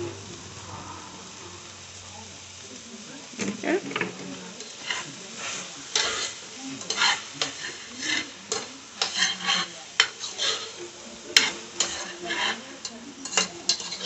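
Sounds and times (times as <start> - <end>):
okra sizzling in a pot: 0.0 - 14.0
spoon scraping a pot: 4.6 - 10.8, 11.4 - 14.0.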